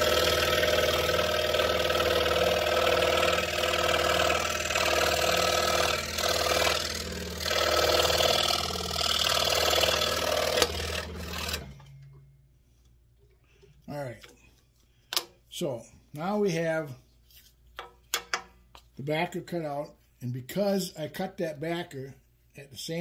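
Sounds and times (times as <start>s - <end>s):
saw blade rasping through wood: 0.0s - 11.8s
scroll saw motor hum: 0.0s - 12.0s.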